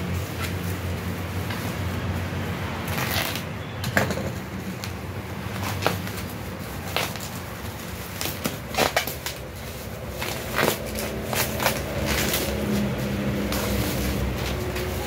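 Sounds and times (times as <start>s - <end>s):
plastic wrapping crinkling: 5.6s - 15.0s.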